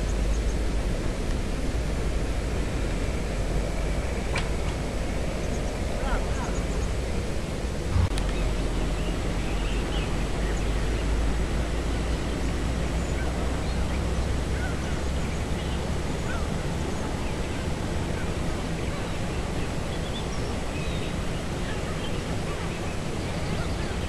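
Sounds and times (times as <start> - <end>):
steady rushing noise: 0.0 - 24.0
flock of waterbirds calling: 4.3 - 7.3, 7.9 - 24.0.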